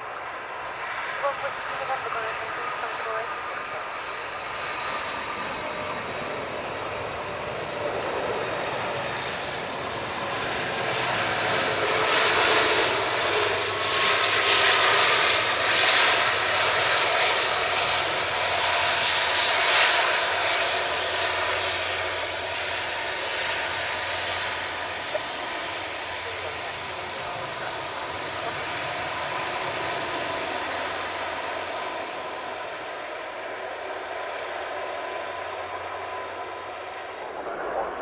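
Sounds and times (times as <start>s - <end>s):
jet engines roaring: 0.0s - 38.0s.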